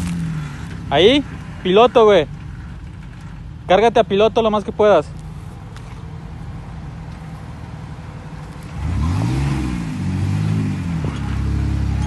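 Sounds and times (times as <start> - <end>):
car engine revving: 8.4 - 12.0.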